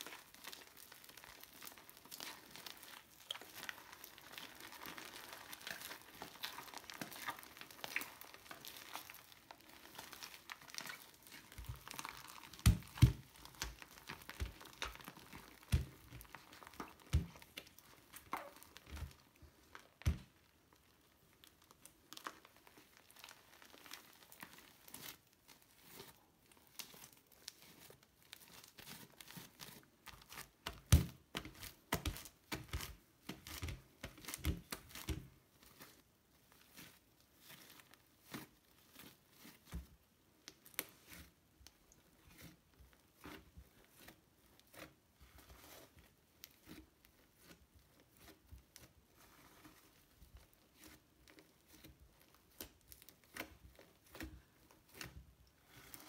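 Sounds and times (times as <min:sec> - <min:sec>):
slime crackling and tearing: 0:00.0 - 0:39.8, 0:40.4 - 0:56.0
slime popping: 0:00.1 - 0:20.4.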